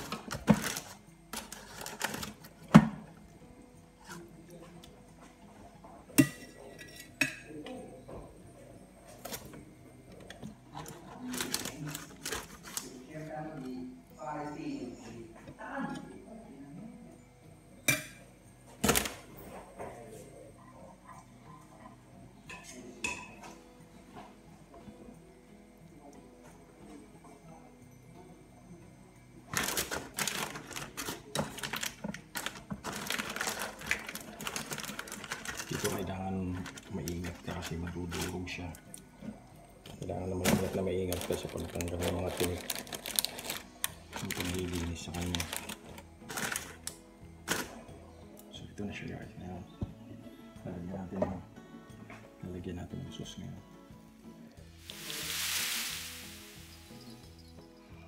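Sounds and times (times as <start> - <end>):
baking paper crinkling: 0.0 - 2.6, 10.8 - 13.0, 29.5 - 38.7, 40.3 - 46.8, 54.8 - 57.2.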